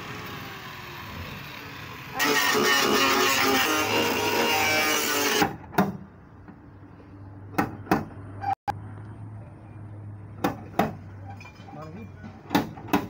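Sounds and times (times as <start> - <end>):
loud motor noise: 0.0 - 5.6.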